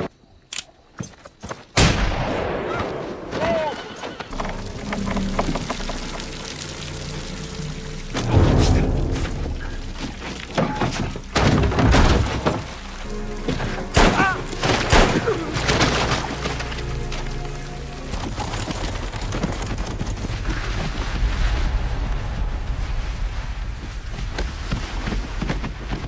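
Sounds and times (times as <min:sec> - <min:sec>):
dark sustained music: 0:04.3 - 0:19.5.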